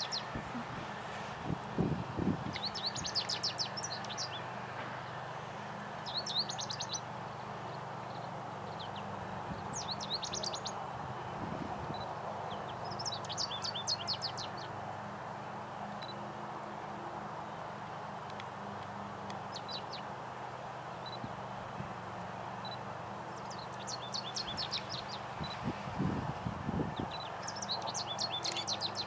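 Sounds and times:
goldfinch singing: 0.0s - 0.6s, 2.4s - 4.5s, 6.0s - 10.8s, 11.9s - 14.8s, 19.3s - 20.1s, 22.6s - 25.8s, 26.9s - 29.0s.

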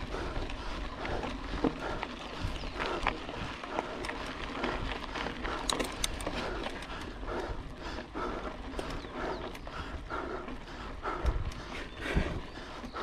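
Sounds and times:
person breathing hard: 0.0s - 13.0s
light clicks: 5.6s - 7.1s.

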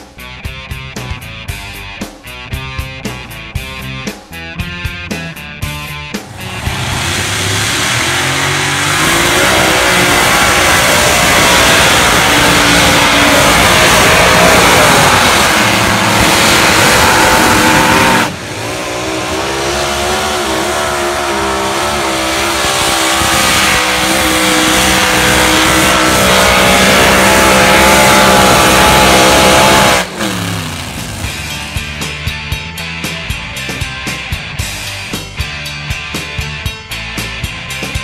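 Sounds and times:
loud engine at full power: 6.0s - 33.8s.

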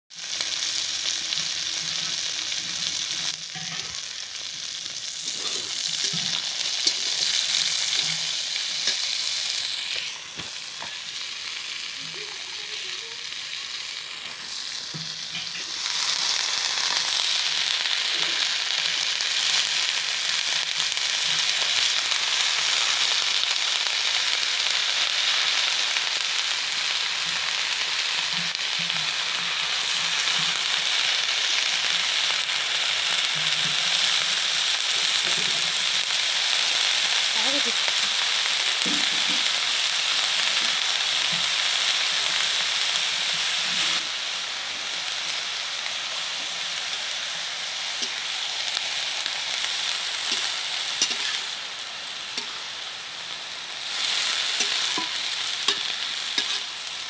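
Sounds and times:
vegetables sizzling in hot oil: 0.1s - 57.0s
steel spatula clinking on pan: 50.4s - 51.4s.

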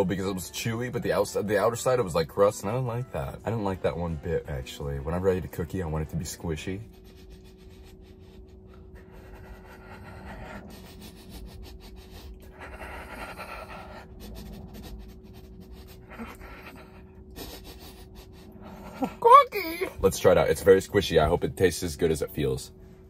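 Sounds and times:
faint steady hum: 0.0s - 23.0s
heavy breathing: 6.8s - 19.2s.

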